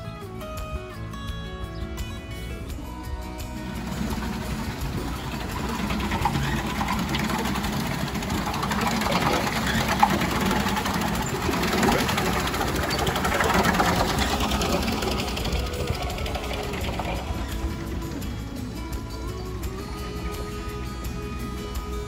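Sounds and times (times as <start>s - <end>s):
water wheel mechanism clattering: 3.6s - 20.0s
water splashing: 3.8s - 18.8s.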